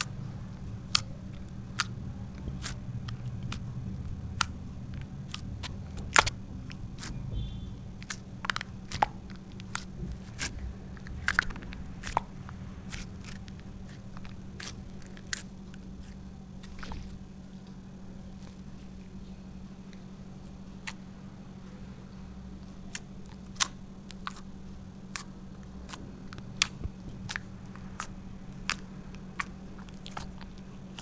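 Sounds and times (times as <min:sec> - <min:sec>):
steady low hum: 0:00.0 - 0:31.0
slime clicking and popping: 0:00.8 - 0:17.2, 0:22.8 - 0:31.0.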